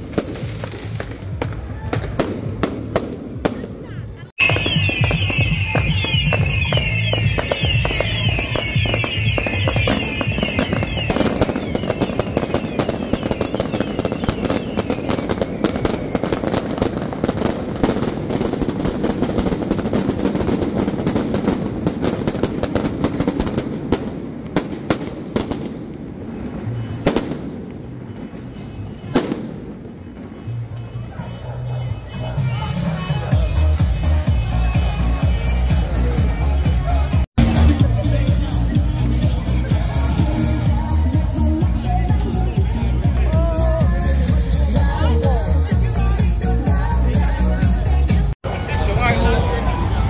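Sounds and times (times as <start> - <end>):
firework booms: 0.0 - 30.5
firecrackers crackling: 0.0 - 31.2, 31.9 - 50.0
firework whistles: 4.4 - 24.0.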